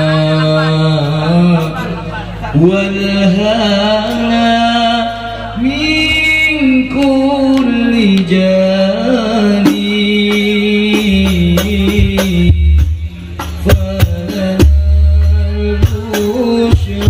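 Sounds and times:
man singing into a microphone: 0.0s - 17.0s
frame drums striking: 9.6s - 17.0s.

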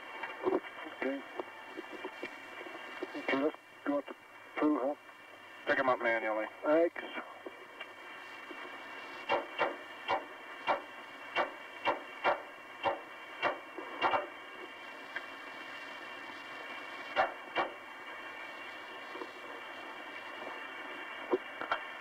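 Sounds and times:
faint steady tones: 0.0s - 22.0s
recording hiss: 0.0s - 22.0s.

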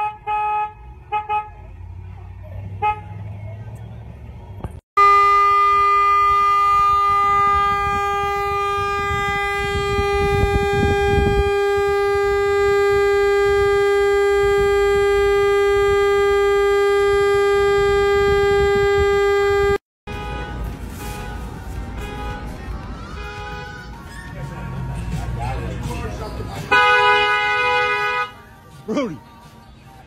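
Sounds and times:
car horn long steady tone: 0.0s - 1.8s, 2.8s - 3.3s, 5.0s - 22.6s, 23.2s - 23.7s, 26.7s - 28.5s.

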